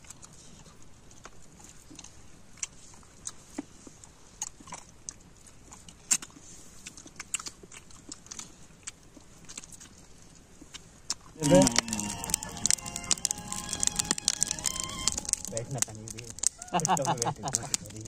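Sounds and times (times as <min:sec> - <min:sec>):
people chewing and crunching: 0:00.0 - 0:18.0
sharp clicks: 0:11.4 - 0:18.0.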